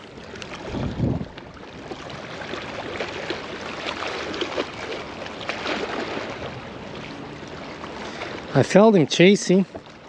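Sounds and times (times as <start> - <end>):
waves lapping on rocks: 0.0 - 10.0.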